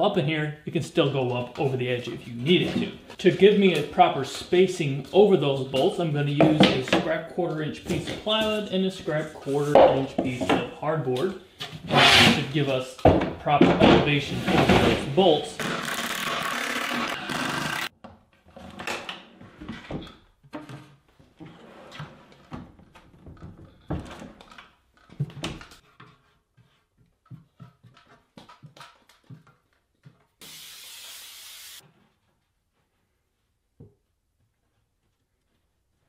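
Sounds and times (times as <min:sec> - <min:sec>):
cordless drill driving screws: 0:15.7 - 0:17.9.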